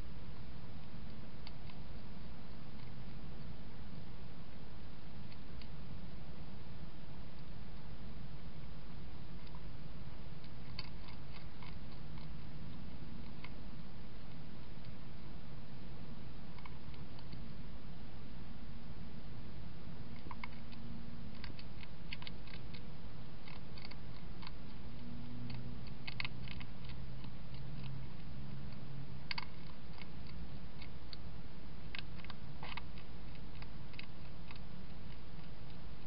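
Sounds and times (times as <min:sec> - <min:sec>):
steady hiss: 0:00.0 - 0:36.0
hedgehog chewing: 0:08.9 - 0:15.3, 0:16.5 - 0:17.4, 0:20.0 - 0:36.0.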